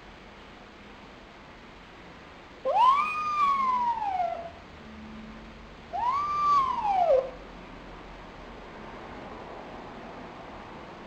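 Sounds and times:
raccoon dog whining calls: 2.6s - 4.6s, 5.9s - 7.4s.

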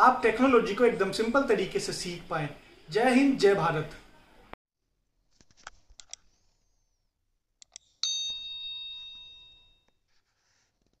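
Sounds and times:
bright bell ding: 8.0s - 9.9s.

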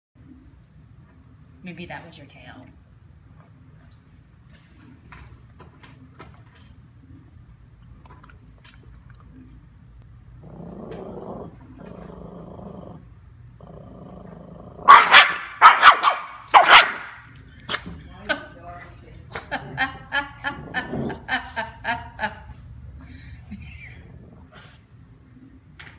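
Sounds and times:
small dog growling: 10.3s - 14.9s
dog barking: 14.8s - 17.2s.

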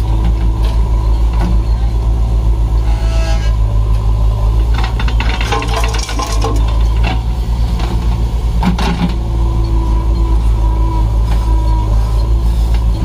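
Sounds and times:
diesel engines running: 0.0s - 13.0s
mud clattering into steel trolley: 4.7s - 9.3s.

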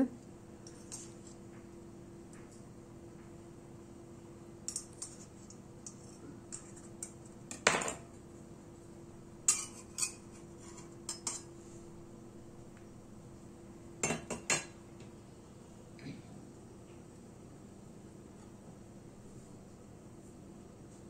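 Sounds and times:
utensils clinking on metal pan: 9.5s - 11.5s.

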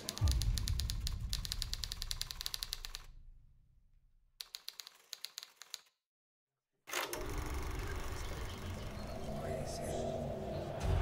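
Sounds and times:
typewriter keys clacking: 0.0s - 3.1s, 4.4s - 5.9s.

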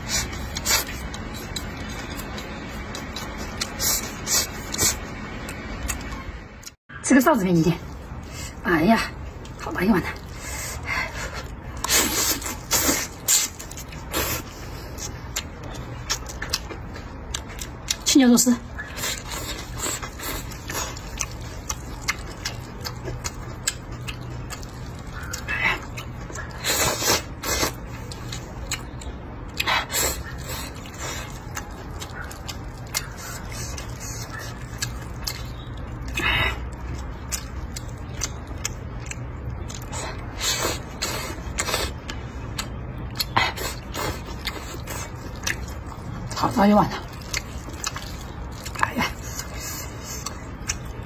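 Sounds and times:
man chewing: 0.0s - 6.8s, 10.2s - 18.0s, 18.7s - 51.0s.

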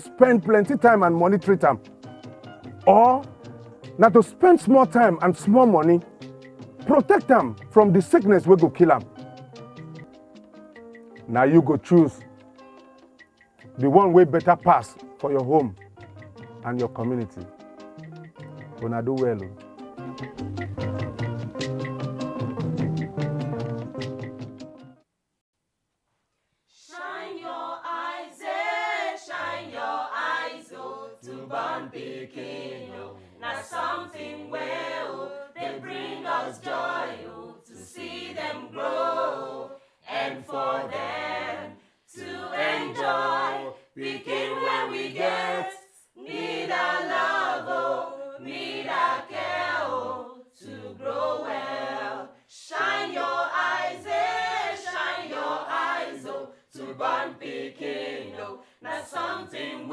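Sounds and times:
choir singing unaccompanied: 26.8s - 59.9s.

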